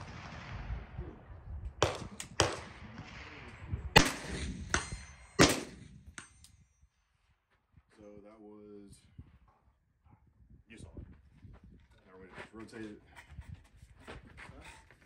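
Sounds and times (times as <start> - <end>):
suppressed rifle shots: 1.8 - 3.3, 4.0 - 6.4.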